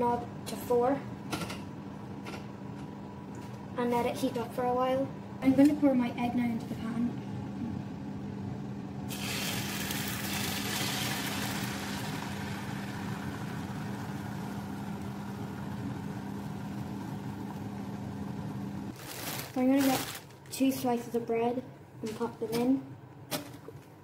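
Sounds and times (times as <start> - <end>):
steady low hum: 0.0 - 24.0
egg sizzling in frying pan: 9.1 - 19.0.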